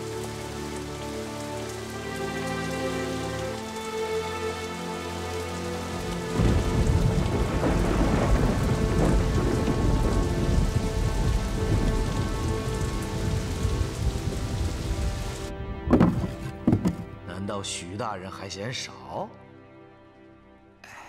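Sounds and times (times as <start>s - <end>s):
heavy rain pouring: 0.0s - 17.2s
thunder rumbling: 6.3s - 16.2s.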